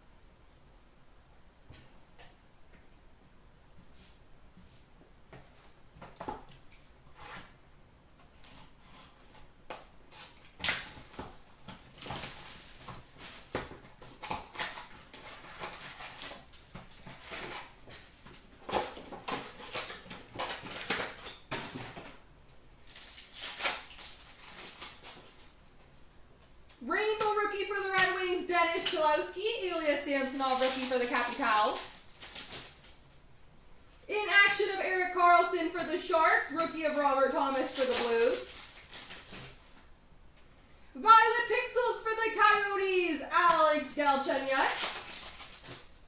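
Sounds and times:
foil packs crinkling and tearing: 10.2 - 22.1, 22.8 - 25.6, 29.9 - 33.0, 36.9 - 39.9, 43.8 - 46.0.

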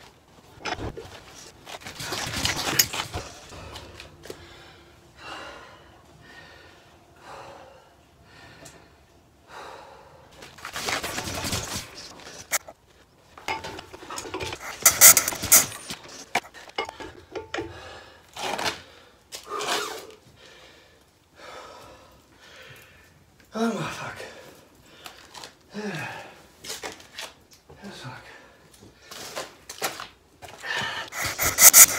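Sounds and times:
man breathing hard and gasping: 2.1 - 12.7, 13.6 - 19.5, 30.5 - 31.9.

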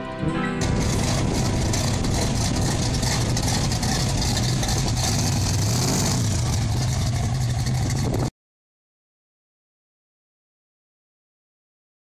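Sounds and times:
car engines rumbling: 0.0 - 8.3.

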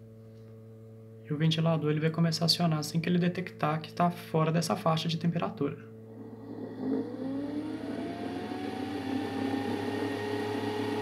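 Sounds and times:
computer cooling fan whine: 0.0 - 11.0.

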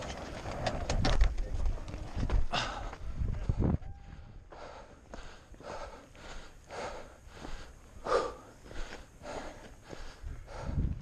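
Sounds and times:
runner breathing heavily: 1.9 - 11.0.

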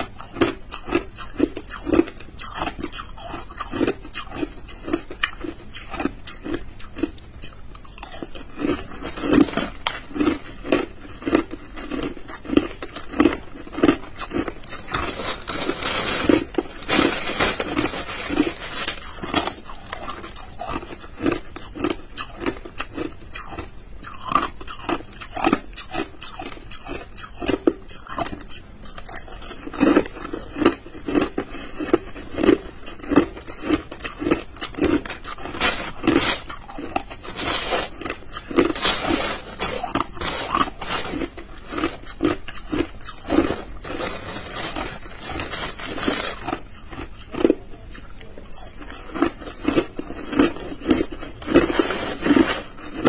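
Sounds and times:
crushed ice being chewed: 0.0 - 53.0.

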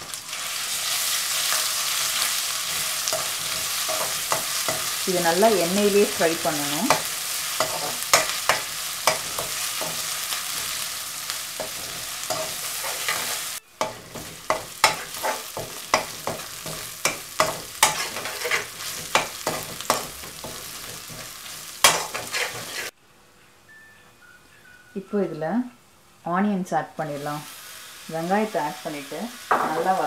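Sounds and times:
spices sizzling in hot oil: 0.0 - 23.0, 27.0 - 30.0
metal spatula scraping pan: 1.4 - 10.8, 11.6 - 22.9.

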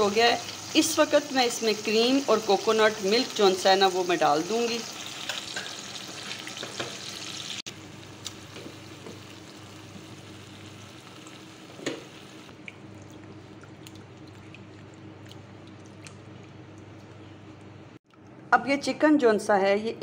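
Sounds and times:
chicken sizzling in oil: 0.0 - 12.5.

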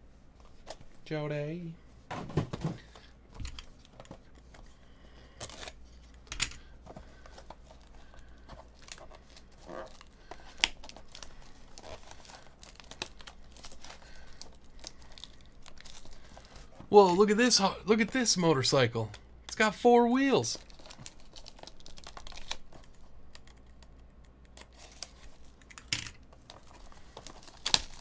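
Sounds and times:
plastic wrap crinkling and tearing: 7.3 - 16.8, 20.6 - 24.0, 26.3 - 28.0.

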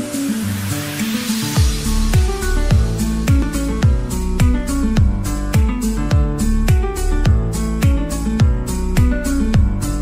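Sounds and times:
kick drum beat: 1.6 - 9.8.

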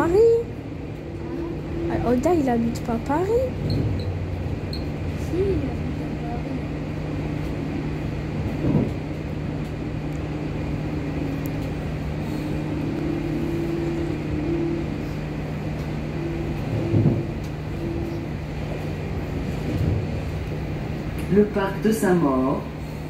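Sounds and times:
low hum: 0.0 - 23.0
train cabin rumble: 0.0 - 23.0
faint pitch-shifting tones: 11.0 - 19.2.

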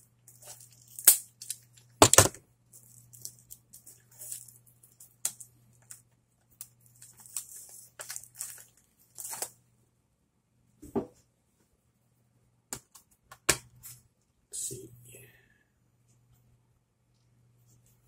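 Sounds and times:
plastic rustling: 0.3 - 9.6.

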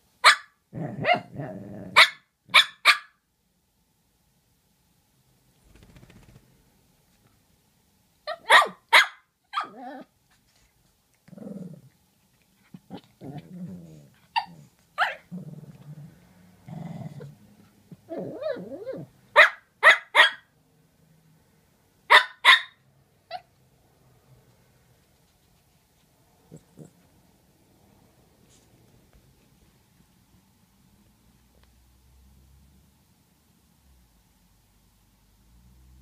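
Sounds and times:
dog growling: 0.7 - 2.0, 9.7 - 10.1, 11.2 - 12.0, 12.7 - 19.2, 26.4 - 27.1
dogs barking: 1.9 - 3.2, 8.3 - 9.8, 14.4 - 15.3, 19.3 - 20.5, 22.1 - 22.8
dog whining: 13.0 - 15.8, 16.9 - 19.2.

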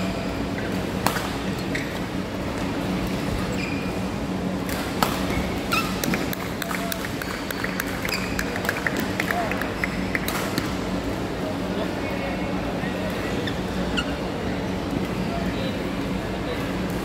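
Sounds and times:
steady hum: 0.0 - 17.0
court shoes squeaking: 0.1 - 10.7, 13.1 - 15.2.

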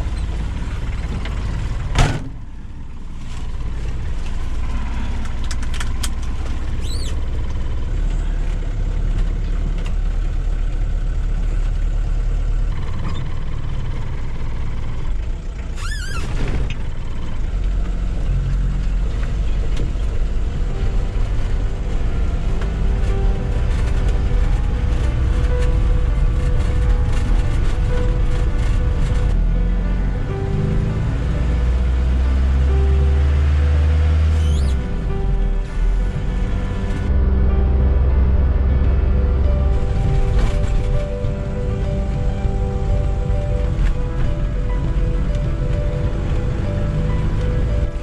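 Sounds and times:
van engine running: 0.0 - 48.0
van door slamming: 1.9 - 2.5
brief high squeaks: 6.8 - 7.2, 15.8 - 16.6, 34.4 - 34.8.

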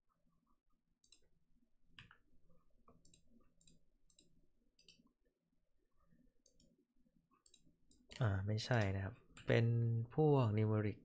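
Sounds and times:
computer mouse clicks: 1.0 - 1.3, 2.9 - 5.1, 6.4 - 6.8, 7.4 - 9.6.

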